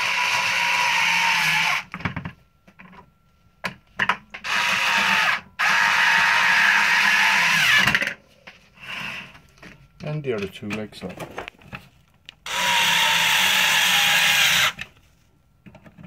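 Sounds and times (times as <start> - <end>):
electric screwdriver running: 12.5 - 14.8.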